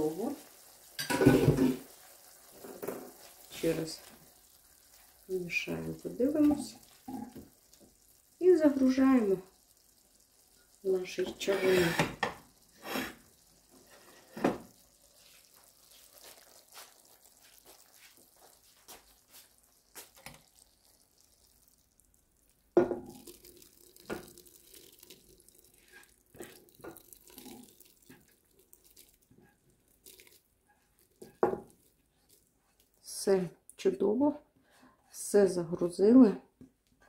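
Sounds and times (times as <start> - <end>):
soft wet sliding: 0.1 - 21.8
plastic spatula scraping a pan: 11.4 - 13.2
knocks on a pot: 22.8 - 23.1.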